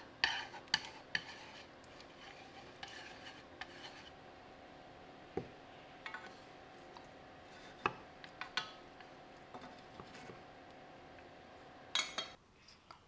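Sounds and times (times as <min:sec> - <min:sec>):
faint steady hum: 0:00.0 - 0:13.0
wooden spatulas scraping a pan: 0:00.2 - 0:04.2, 0:07.4 - 0:10.5.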